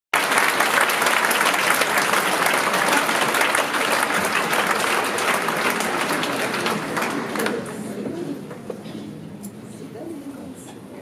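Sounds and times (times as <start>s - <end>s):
audience applauding: 0.2s - 8.0s.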